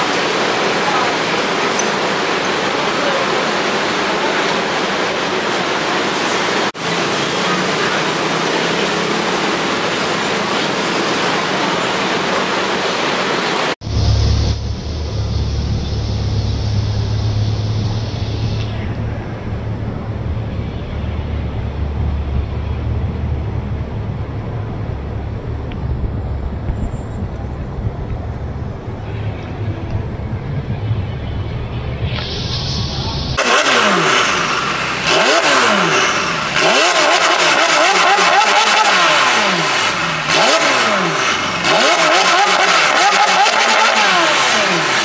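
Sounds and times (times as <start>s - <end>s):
street noise: 0.0s - 45.0s
car engine rumbling at low revs: 13.8s - 37.6s.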